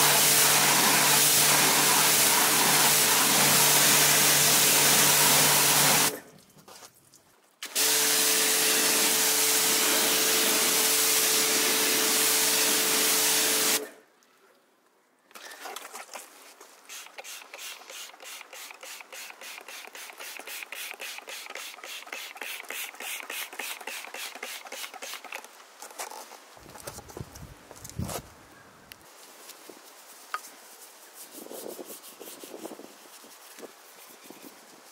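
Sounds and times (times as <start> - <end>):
pressure washer spraying: 0.0 - 6.2, 7.6 - 13.9, 16.9 - 25.4.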